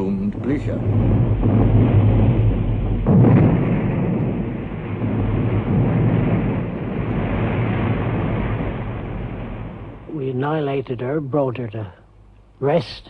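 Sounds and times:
heavy gunfire and explosions: 0:00.0 - 0:10.1.

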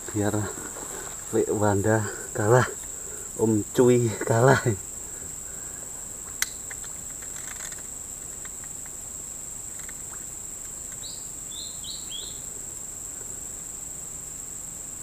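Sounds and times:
insects droning: 0:00.0 - 0:15.0
bird chirps: 0:11.0 - 0:12.5.

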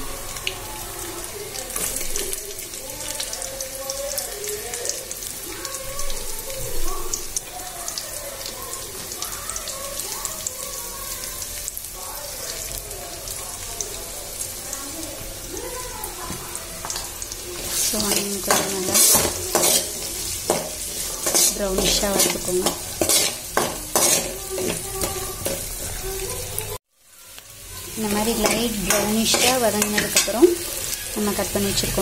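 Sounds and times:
onions sizzling in hot oil: 0:00.0 - 0:32.0.

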